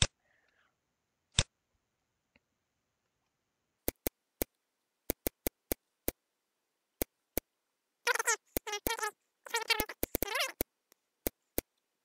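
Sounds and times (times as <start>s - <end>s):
computer mouse clicks: 3.8s - 6.2s.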